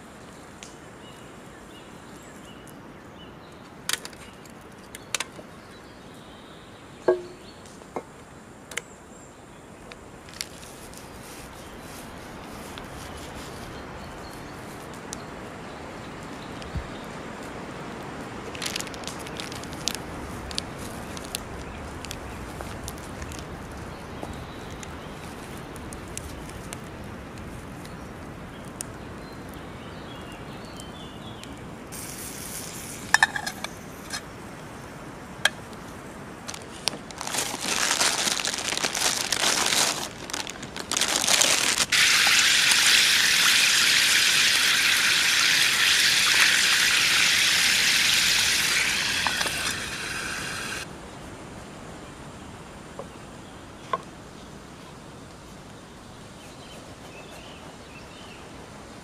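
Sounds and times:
meat sizzling in a pan: 41.9s - 50.8s.

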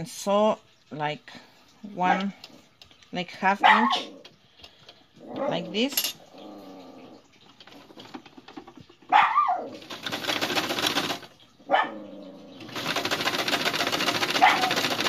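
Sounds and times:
dog barking: 3.6s - 4.1s, 9.1s - 9.7s, 11.6s - 12.1s, 14.4s - 14.8s
sewing machine stitching: 9.8s - 11.3s, 12.6s - 15.0s.

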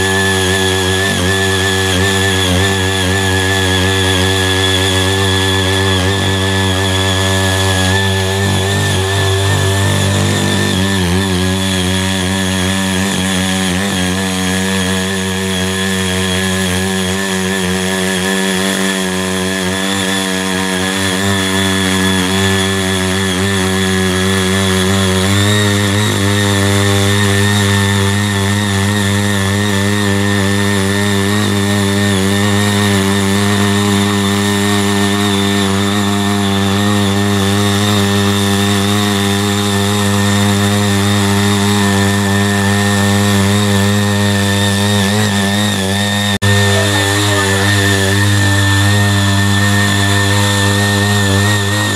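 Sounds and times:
power tiller engine running: 0.0s - 51.9s
tines churning soil: 0.0s - 51.9s.

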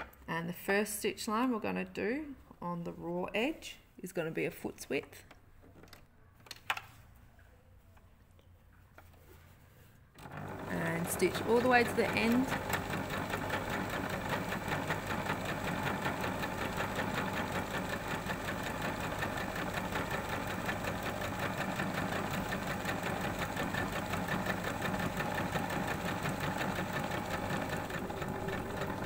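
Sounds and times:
electric sewing machine running: 10.2s - 29.0s.

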